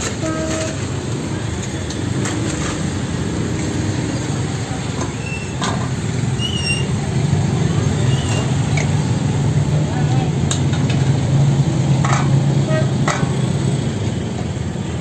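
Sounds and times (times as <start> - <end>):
motorbike engines in traffic: 0.0 - 15.0.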